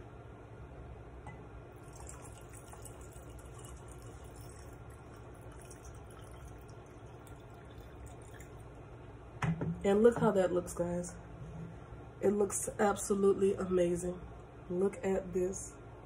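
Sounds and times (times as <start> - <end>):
liquid trickling into jar: 1.7 - 8.8.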